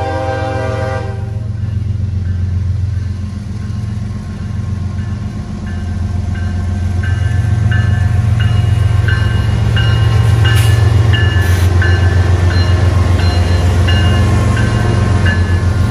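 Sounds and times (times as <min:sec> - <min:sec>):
locomotive air horn: 0:00.0 - 0:01.5
diesel locomotive rumble: 0:00.0 - 0:15.9.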